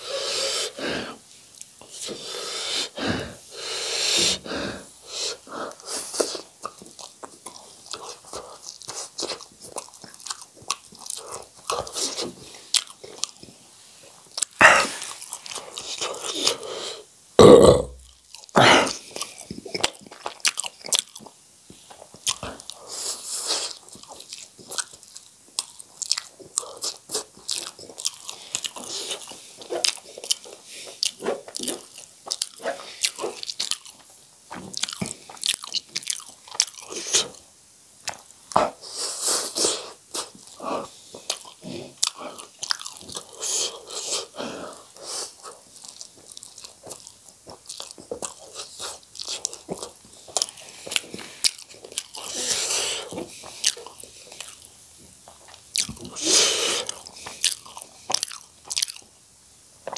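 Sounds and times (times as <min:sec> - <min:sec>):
wet chewing: 0:05.7 - 0:13.6, 0:18.0 - 0:37.4, 0:38.0 - 0:59.1
slurping noodles: 0:52.2 - 0:53.9, 0:56.1 - 0:57.4.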